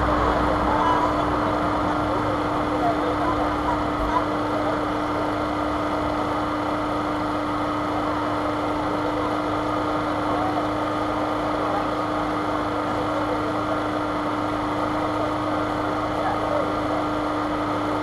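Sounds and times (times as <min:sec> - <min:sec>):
faint voices: 0:00.0 - 0:05.9
steady machine hum: 0:00.0 - 0:18.0.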